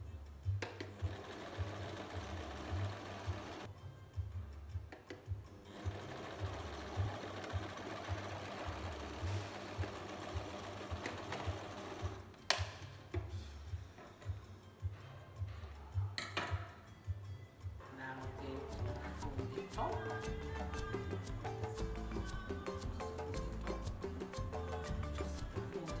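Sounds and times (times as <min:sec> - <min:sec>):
sewing machine stitching: 0:01.0 - 0:03.7, 0:05.7 - 0:12.3.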